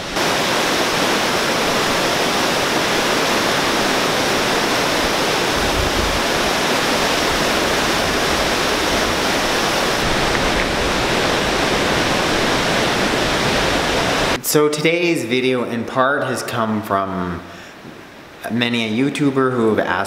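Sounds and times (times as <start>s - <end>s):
water rushing over rapids: 0.0s - 14.4s.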